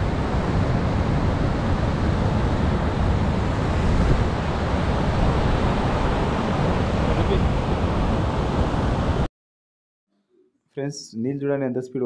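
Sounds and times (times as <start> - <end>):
water rushing over rocks: 0.0 - 8.8.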